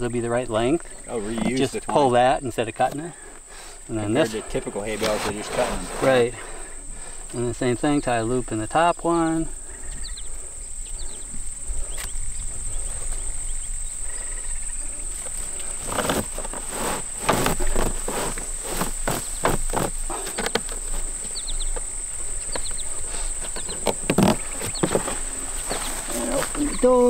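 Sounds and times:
high-pitched insect drone: 3.8 - 27.0
dry hay rustling and scraping: 15.0 - 21.2, 24.2 - 27.0.

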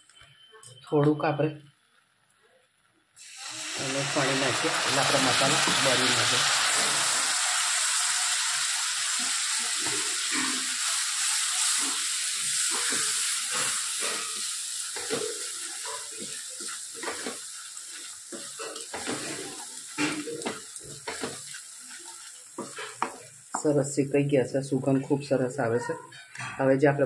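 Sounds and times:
spices sizzling in hot oil: 3.2 - 25.3
spatula scraping pan: 9.9 - 23.4.

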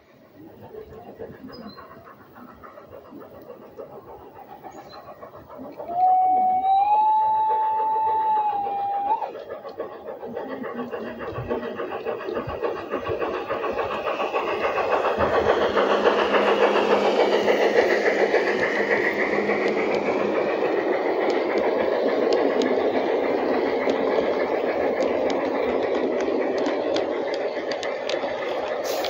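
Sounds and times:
model train wheels rumbling: 0.0 - 29.0
wheels clicking over rail joints: 0.7 - 29.0.

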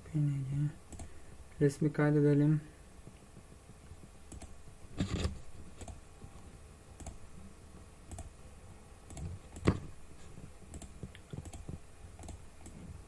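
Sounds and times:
computer mouse clicks: 0.9 - 1.1, 4.3 - 6.0, 7.0 - 7.2, 8.1 - 8.3, 9.1 - 9.9, 10.7 - 12.9.

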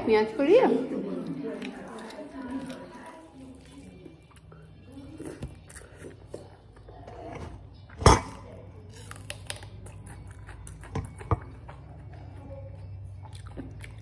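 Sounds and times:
person chewing: 1.2 - 7.0, 8.8 - 11.9, 13.2 - 14.0.

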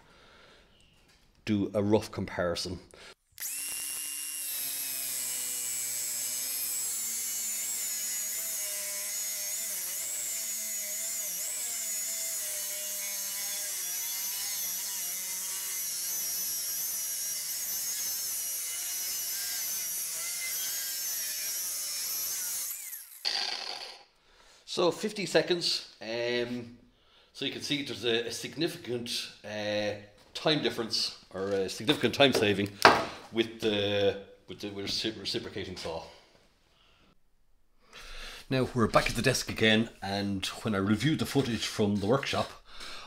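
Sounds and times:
angle grinder cutting steel: 3.4 - 24.1.

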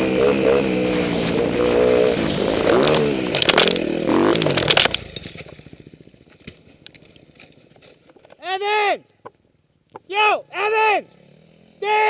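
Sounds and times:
dirt bike engine revving: 0.0 - 7.7, 10.6 - 12.0
impacts and scraping on rock: 2.2 - 5.6
falling stones ticking: 2.7 - 5.6.

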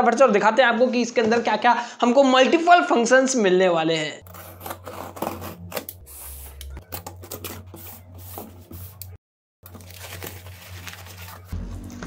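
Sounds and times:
packing paper rustling: 4.2 - 9.0, 9.6 - 11.6
cardboard box scraping and tapping: 4.3 - 5.9, 6.5 - 8.9.

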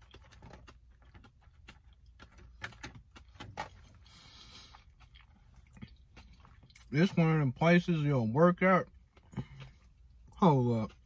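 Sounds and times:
clicks and knocks from eating: 0.0 - 4.2.

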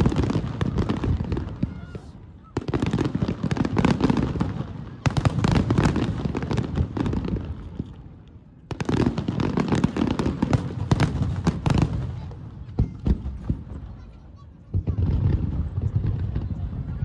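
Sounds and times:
fireworks bursting with crackling: 0.0 - 17.0.

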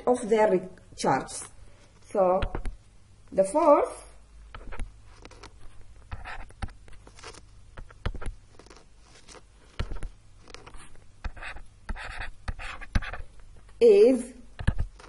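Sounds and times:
low steady hum: 0.0 - 15.0
stylus tapping on tablet: 2.3 - 2.8, 7.7 - 8.4, 14.6 - 14.9.

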